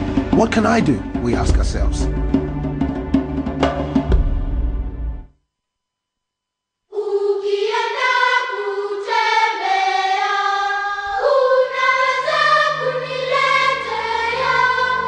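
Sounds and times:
choir singing held chords: 0:06.9 - 0:15.0.

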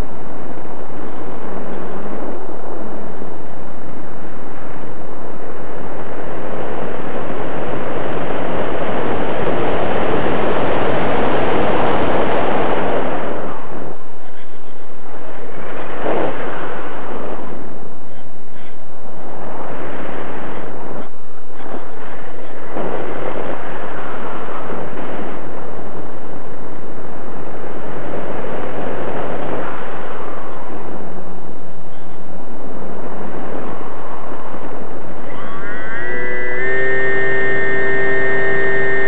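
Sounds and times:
airflow rushing: 0:35.2 - 0:39.0
model plane motor: 0:35.3 - 0:39.0.

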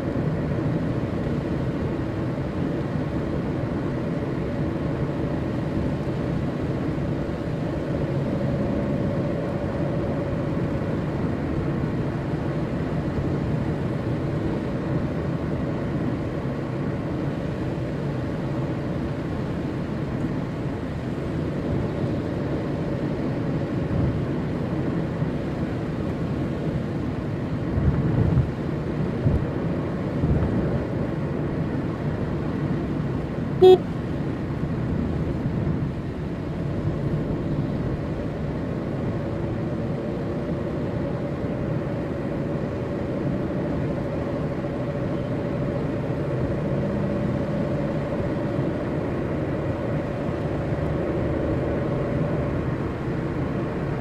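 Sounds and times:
car driving on wet road: 0:00.0 - 0:54.0
car horn beep: 0:33.6 - 0:33.9.

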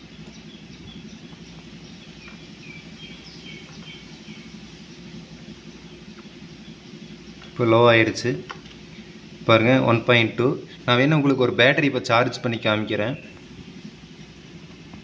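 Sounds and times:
faint bird chirps: 0:00.0 - 0:11.0
low background hum: 0:00.0 - 0:15.0.

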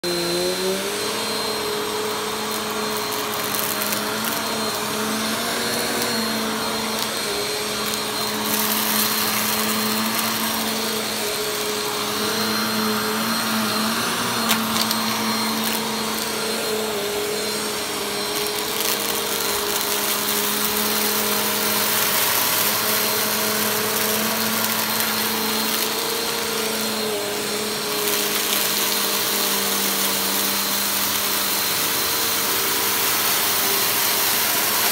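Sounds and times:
vacuum cleaner running: 0:00.0 - 0:34.9
dirt crunching in vacuum: 0:02.1 - 0:29.6.

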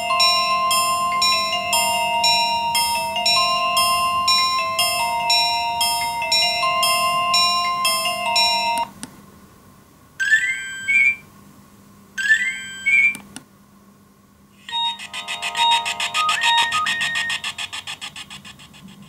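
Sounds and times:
mobile phone alert tones: 0:00.0 - 0:08.9, 0:10.2 - 0:11.2, 0:12.2 - 0:13.2, 0:14.6 - 0:17.7.

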